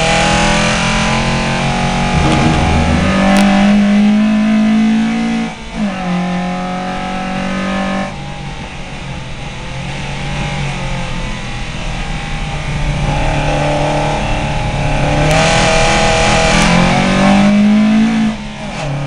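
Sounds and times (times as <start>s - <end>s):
race car engine at high revs: 9.7s - 19.0s.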